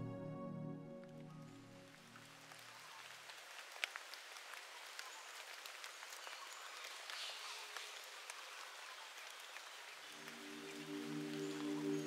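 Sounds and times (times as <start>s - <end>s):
gentle music: 0.0s - 3.2s, 10.0s - 12.0s
raindrops ticking: 1.0s - 12.0s
rain hissing: 1.2s - 12.0s.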